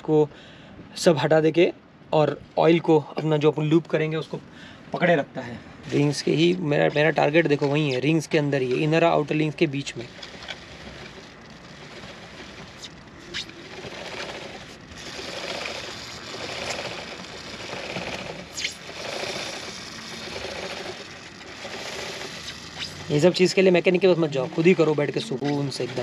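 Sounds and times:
drive chain clicking over sprocket: 10.0 - 25.0.

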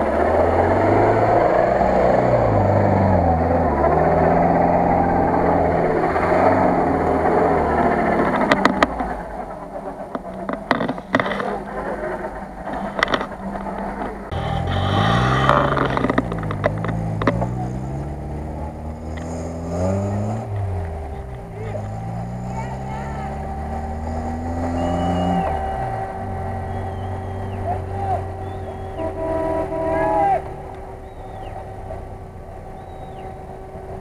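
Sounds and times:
engine revving: 0.0 - 34.0
off-road engine running: 0.0 - 34.0
tyres rushing on dirt: 0.0 - 34.0
sharp clicks and knocks: 8.0 - 9.2, 10.0 - 11.6, 12.6 - 17.8.

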